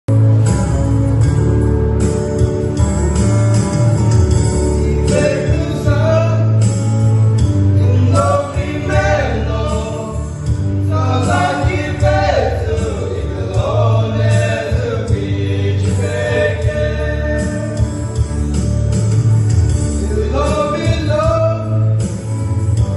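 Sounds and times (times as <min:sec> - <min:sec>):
instrumental backing track: 0:00.1 - 0:22.9
men singing gospel together: 0:04.8 - 0:06.7, 0:07.8 - 0:18.1, 0:19.9 - 0:21.9.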